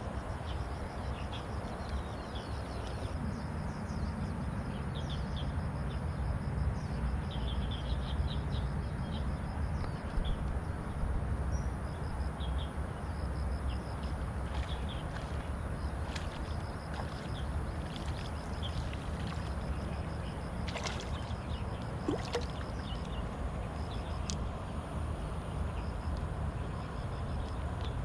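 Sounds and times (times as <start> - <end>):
low background rumble: 0.0 - 28.0
birds chirping: 13.6 - 24.4.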